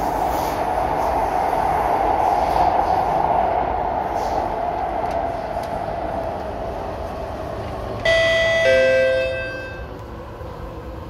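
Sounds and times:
train running noise: 0.0s - 11.0s
two-note descending door chime: 8.1s - 9.9s.

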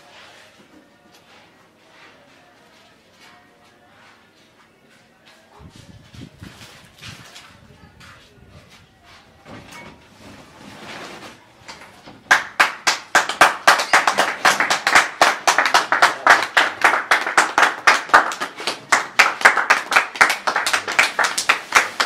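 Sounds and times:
hands clapping: 12.3s - 22.0s.

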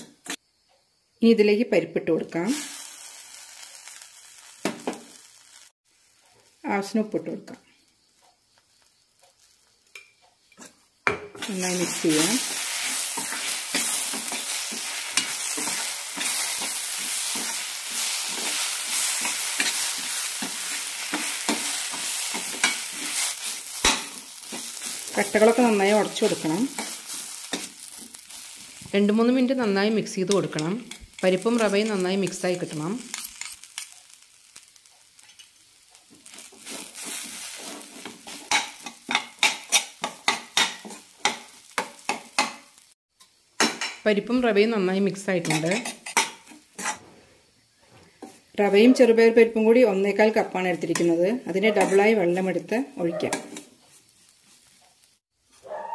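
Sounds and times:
oil frying hiss: 0.0s - 55.8s
steel spoon scraping a pan: 11.4s - 28.9s, 33.0s - 42.6s, 45.4s - 47.4s, 50.9s - 52.6s, 53.2s - 55.1s
spoon scraping steel pan: 12.4s - 25.0s, 45.4s - 47.1s.

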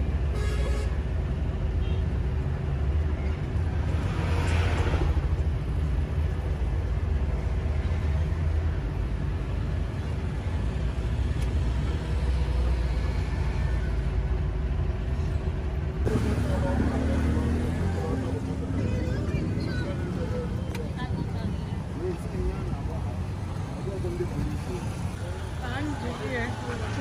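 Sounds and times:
vehicle cabin engine and road rumble: 0.0s - 27.0s.

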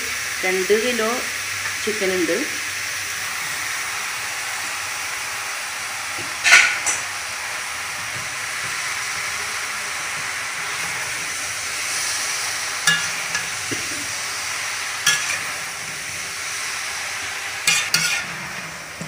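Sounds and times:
food sizzling in a pan: 0.0s - 19.0s
metal spatula clinking on pan: 12.8s - 13.6s, 15.0s - 15.4s, 17.6s - 18.3s.

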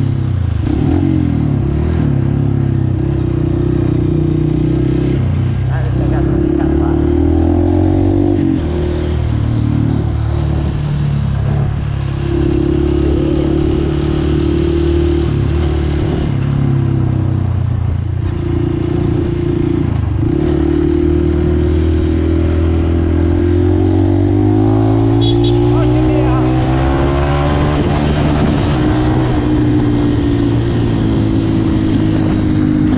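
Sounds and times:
dirt bike engine running: 23.3s - 27.6s.

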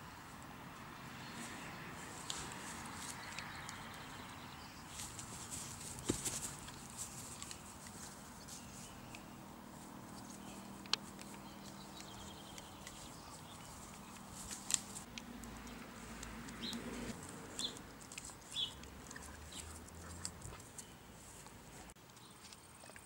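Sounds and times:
puppy gnawing an apple: 4.9s - 23.0s.

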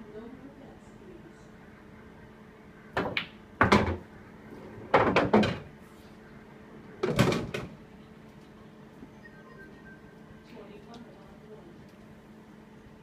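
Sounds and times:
pool balls clacking: 2.9s - 4.1s, 4.7s - 5.7s.

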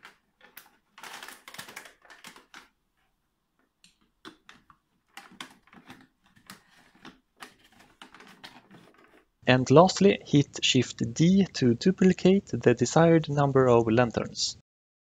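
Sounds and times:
paper rustling: 0.0s - 3.1s, 4.3s - 9.3s.

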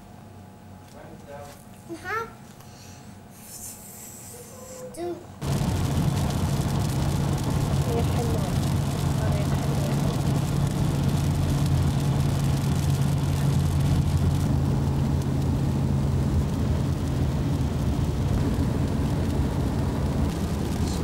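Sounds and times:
car road noise inside cabin: 4.3s - 21.0s.

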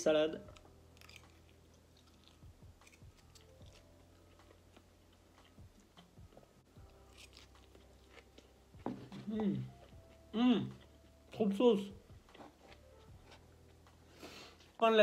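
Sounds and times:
chewing food: 0.4s - 11.4s.

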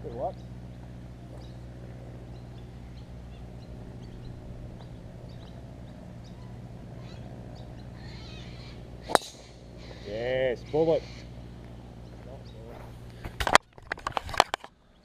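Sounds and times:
small birds chirping: 0.0s - 13.9s
golf club striking ball: 0.6s - 10.0s.

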